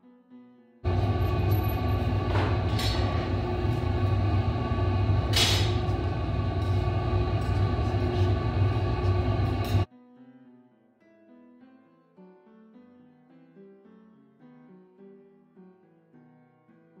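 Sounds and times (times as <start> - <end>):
furnace low rumble: 0.9 - 9.9.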